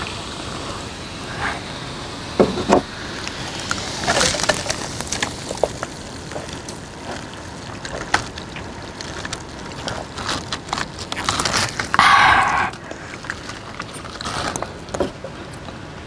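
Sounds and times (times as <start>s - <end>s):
sipping through a straw: 11.2s - 13.6s
loud slurps: 11.2s - 14.6s.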